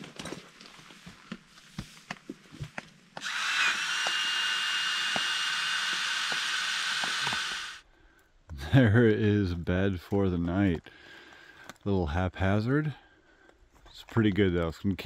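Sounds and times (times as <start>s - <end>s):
gear knocks and rustles: 0.0s - 3.0s
electric air pump whirring: 3.2s - 7.8s.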